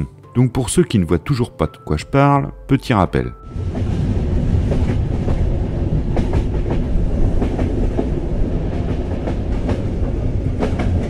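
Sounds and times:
train wheels clickety-clack: 0:03.7 - 0:11.0.

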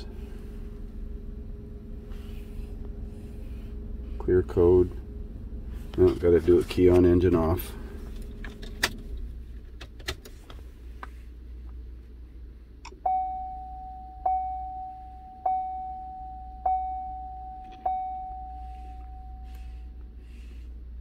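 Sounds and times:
car warning chime: 0:12.8 - 0:20.0.

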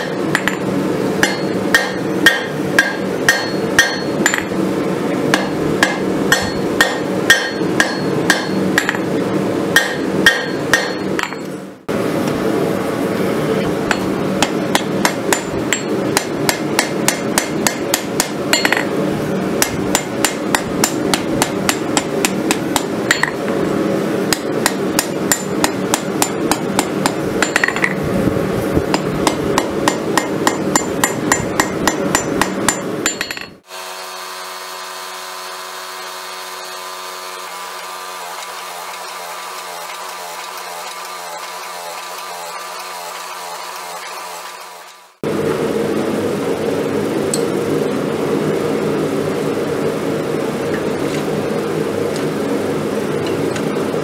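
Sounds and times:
hammer striking hot steel on anvil: 0:00.0 - 0:04.6, 0:05.3 - 0:09.1, 0:09.7 - 0:11.6, 0:13.8 - 0:19.0, 0:19.6 - 0:23.5, 0:24.3 - 0:28.0, 0:28.9 - 0:33.7
steady hum: 0:00.0 - 0:54.0.

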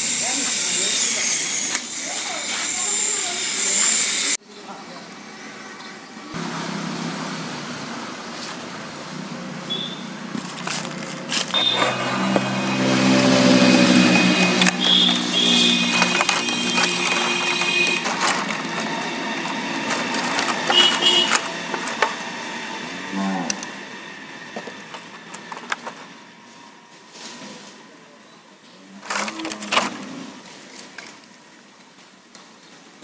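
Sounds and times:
plastic and cardboard crinkling: 0:10.3 - 0:12.6, 0:13.7 - 0:22.3, 0:24.6 - 0:26.1, 0:29.0 - 0:31.3.

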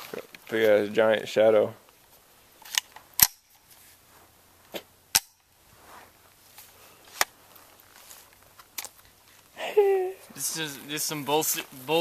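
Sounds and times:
faint background hiss: 0:00.0 - 0:12.0
sharp cracks: 0:02.6 - 0:03.6, 0:04.7 - 0:05.5.

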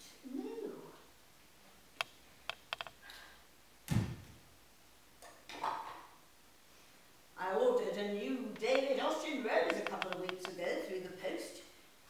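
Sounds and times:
dull thump: 0:03.9 - 0:04.4.

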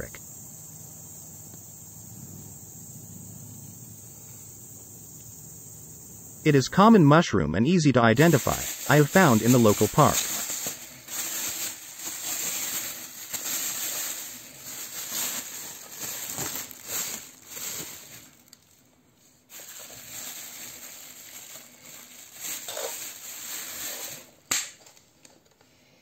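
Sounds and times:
plastic bag rustling: 0:08.2 - 0:18.9, 0:19.5 - 0:24.5.

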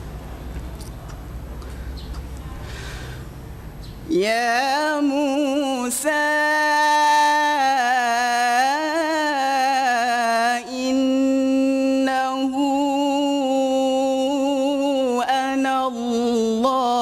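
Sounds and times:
man chanting melodically: 0:03.9 - 0:17.0.

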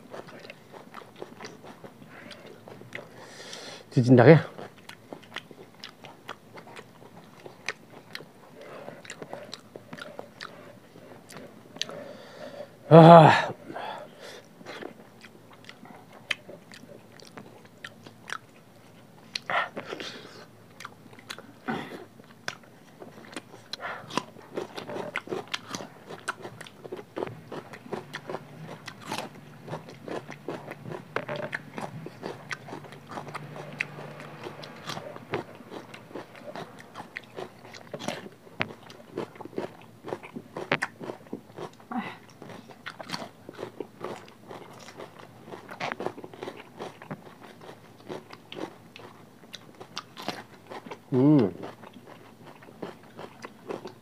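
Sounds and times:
wet chewing and lip smacks: 0:04.6 - 0:12.0, 0:14.4 - 0:20.1, 0:22.2 - 0:51.0.

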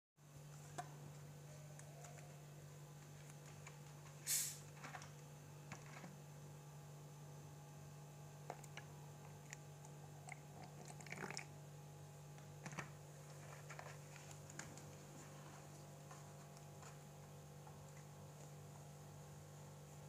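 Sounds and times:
low steady hum: 0:00.2 - 0:20.0
carbonation bubbles popping: 0:08.5 - 0:11.6
cola pouring into plastic bowl: 0:08.5 - 0:11.6.

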